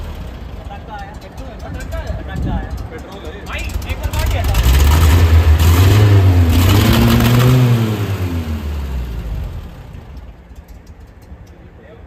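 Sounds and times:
car engine revving: 3.6 - 10.4.

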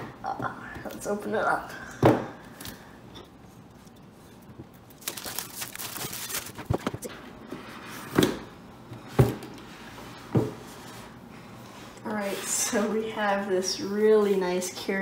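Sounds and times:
plastic wrap crinkling and tearing: 4.9 - 7.1.

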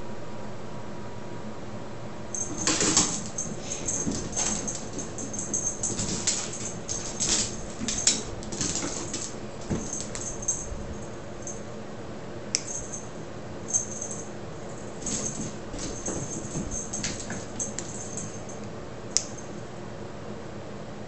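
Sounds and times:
cat claws skittering on tile floor: 2.4 - 11.6, 13.7 - 18.6
sharp click: 12.5 - 12.8.

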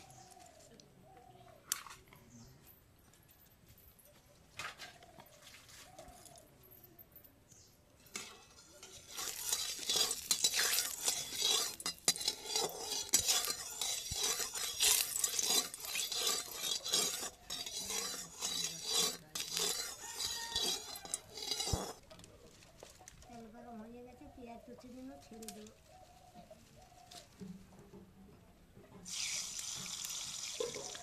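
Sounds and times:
metal spatula scraping wok: 8.0 - 22.2, 29.1 - 31.0
oil sizzling: 8.1 - 22.0, 29.1 - 31.0.

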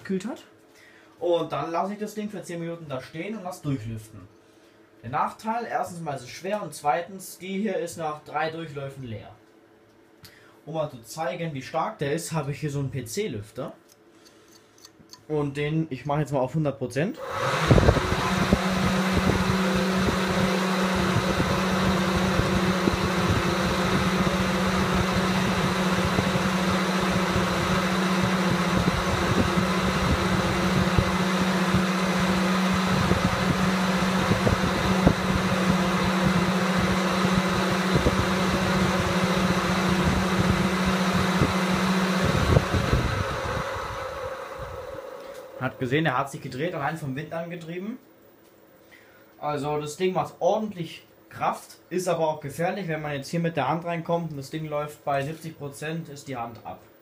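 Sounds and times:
electric cooling fan running: 17.2 - 47.6.

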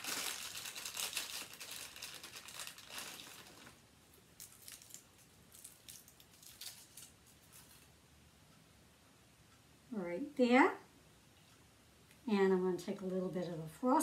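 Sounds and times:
packaging crinkling: 0.0 - 3.8, 4.4 - 7.9.

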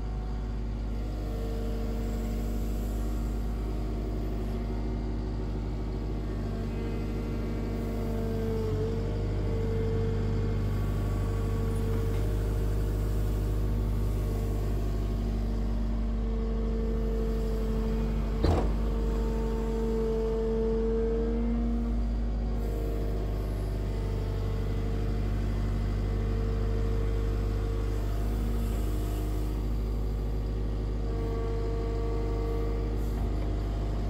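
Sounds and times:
diesel engine running: 0.0 - 34.0
hydraulic whine: 0.0 - 34.0.

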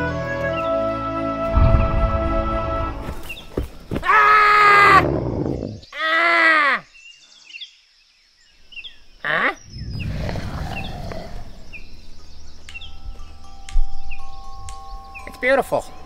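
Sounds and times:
low rumble: 1.5 - 3.3, 9.6 - 13.4
birds chirping faintly: 1.6 - 16.0
man falling on dirt path: 1.8 - 4.9.

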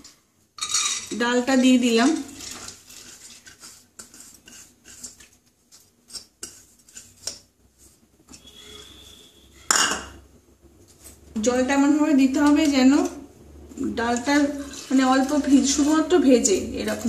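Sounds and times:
soft scraping in bowl: 2.2 - 9.7, 14.4 - 17.0.

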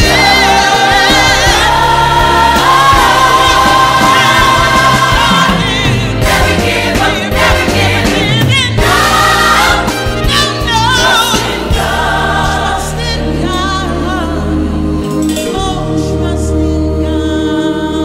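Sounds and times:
backing singers: 0.0 - 17.0
woman singing: 12.8 - 18.0.

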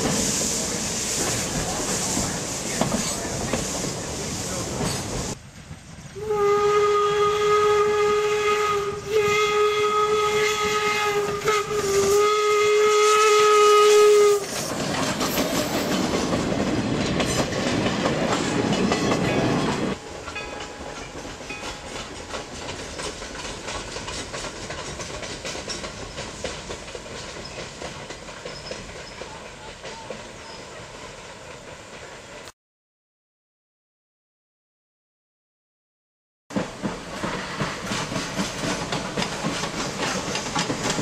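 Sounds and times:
steam locomotive whistle: 6.2 - 14.7
train wheels clattering: 14.2 - 30.6, 36.5 - 41.0.

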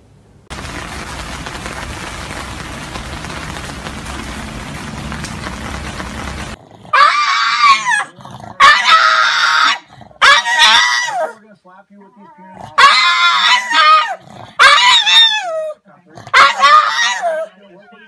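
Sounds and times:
rain falling on pavement: 0.5 - 6.6
dog whining howls: 6.9 - 11.4, 12.8 - 17.6.

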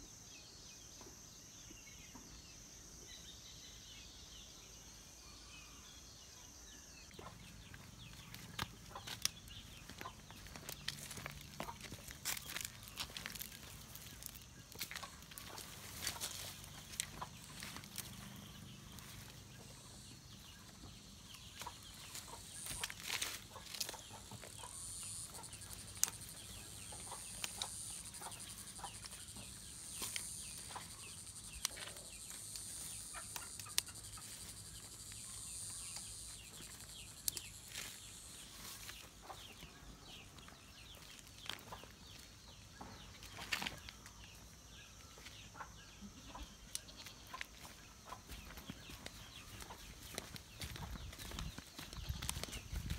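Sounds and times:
chickens clucking: 7.2 - 52.9
branches rustling and clicking: 8.3 - 18.3, 21.6 - 24.5, 25.3 - 29.2, 29.9 - 34.6.

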